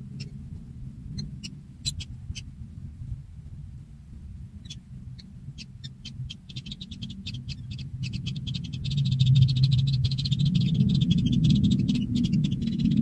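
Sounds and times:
nestlings begging calls: 0.0 - 0.4, 1.1 - 2.5, 4.6 - 13.0
low rumble: 0.0 - 13.0.

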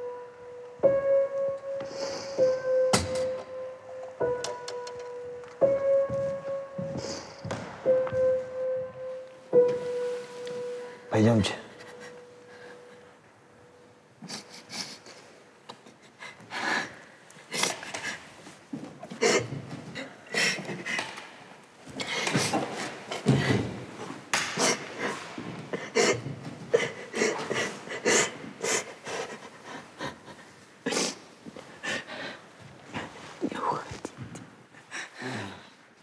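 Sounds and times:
heavy breathing: 1.8 - 2.6, 6.8 - 7.5, 24.5 - 33.2, 34.7 - 36.0.

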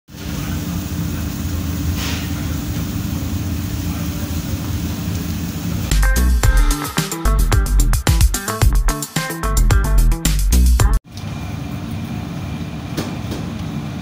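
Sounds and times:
music: 5.9 - 11.0.

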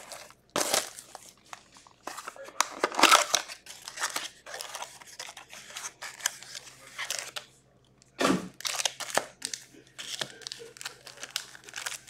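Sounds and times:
paper rustling and scraping: 0.0 - 7.4.

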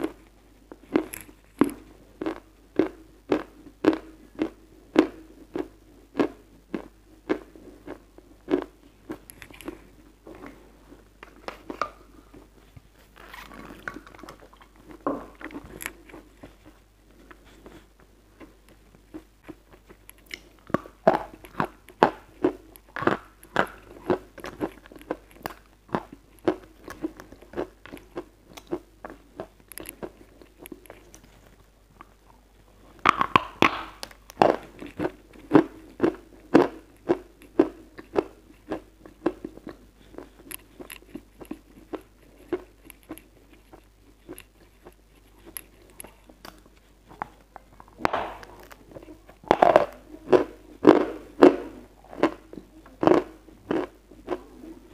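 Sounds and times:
chewing chalk with crunches: 33.0 - 54.5.

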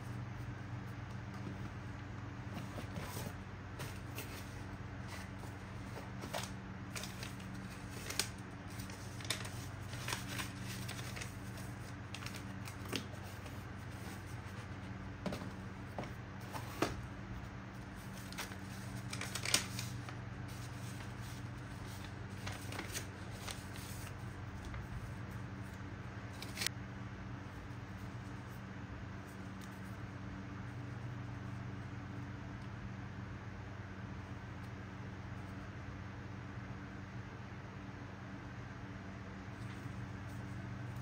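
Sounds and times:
paper rustling: 2.4 - 17.1, 17.8 - 26.7.

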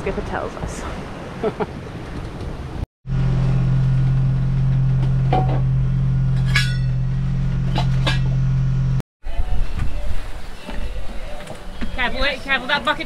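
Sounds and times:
loud low mechanical drone: 3.1 - 9.0.

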